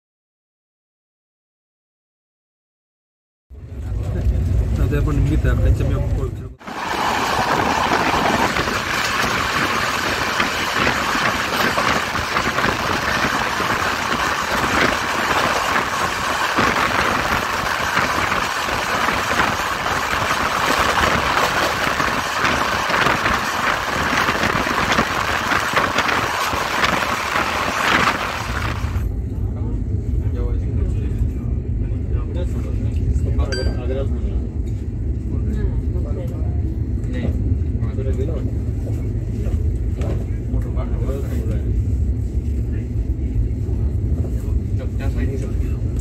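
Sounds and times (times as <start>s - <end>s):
train wheels on rails: 6.6s - 29.0s
wind rushing: 6.6s - 29.0s.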